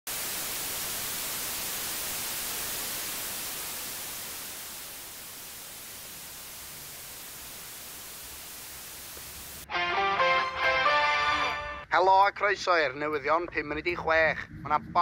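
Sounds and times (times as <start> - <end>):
television static hiss: 0.1 - 9.7.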